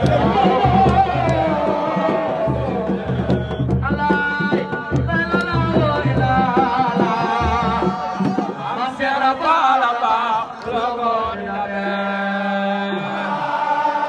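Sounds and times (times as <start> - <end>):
drums beating: 0.0 - 9.2
man singing a chant: 0.0 - 14.0.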